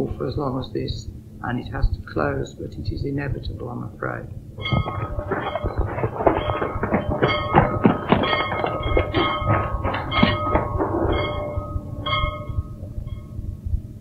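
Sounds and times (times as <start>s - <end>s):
bell ringing: 4.6s - 13.5s
metallic clanking: 4.6s - 13.5s.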